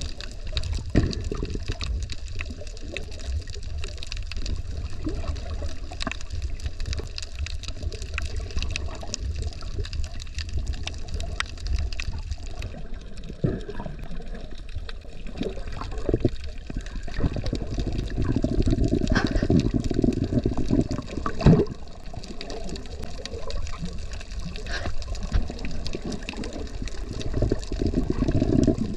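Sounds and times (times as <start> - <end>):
water sloshing and gurgling: 0.0 - 28.9.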